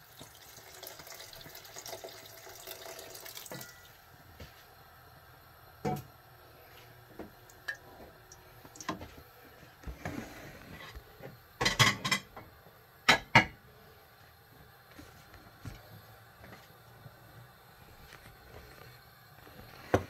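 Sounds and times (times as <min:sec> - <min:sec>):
pans knocking and clinking: 0:11.6 - 0:12.4, 0:13.1 - 0:13.6.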